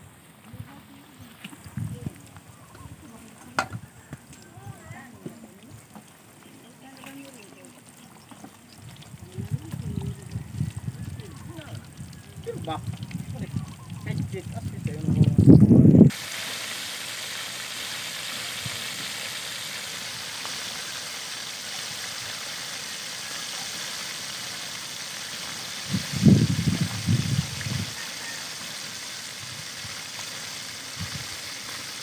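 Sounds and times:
chicken frying in hot oil: 0.5 - 32.0.

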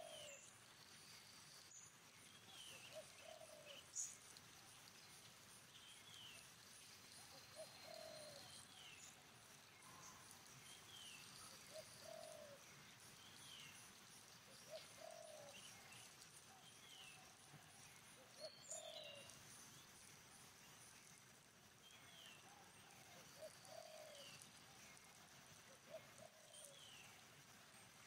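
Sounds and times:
dove cooing: 0.0 - 0.4, 2.9 - 3.8, 7.5 - 8.5, 11.7 - 12.6, 14.7 - 15.6, 18.4 - 19.2, 22.8 - 24.3, 25.9 - 26.8.

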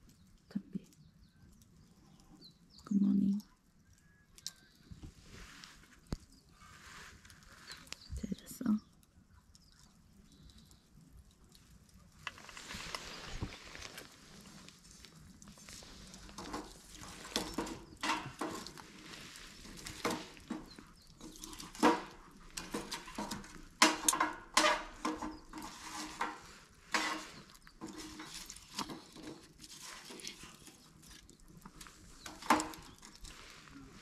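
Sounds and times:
cookware and utensils clattering: 15.9 - 30.5.

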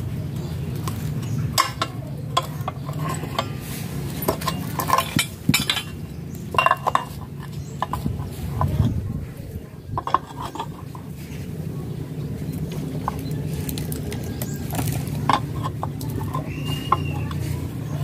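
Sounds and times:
metal socket wrench clinking: 4.2 - 8.1.

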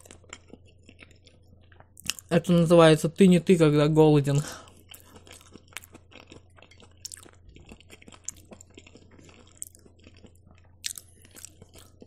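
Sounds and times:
close chewing with wet clicks: 0.0 - 2.3, 4.7 - 12.0.

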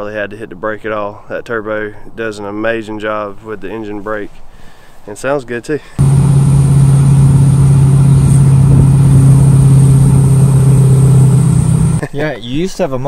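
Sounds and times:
diesel truck engine drone: 6.0 - 12.0
turbo whine: 6.0 - 12.0.

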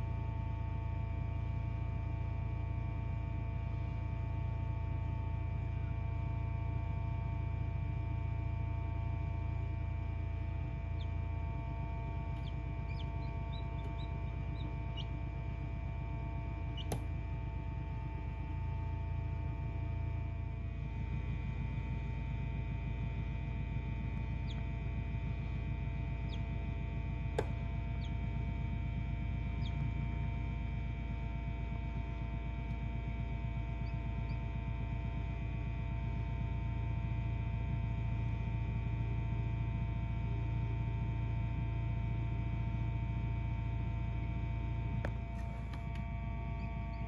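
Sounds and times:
egg incubator humming: 0.0 - 47.0
chick chirping: 12.4 - 15.1.

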